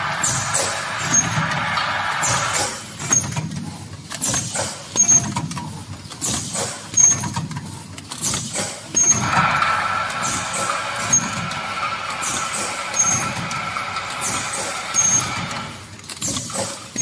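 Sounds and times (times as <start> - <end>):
filling machine rumble and clatter: 0.0 - 17.0
short high machine squeak: 12.9 - 13.4, 14.2 - 15.7.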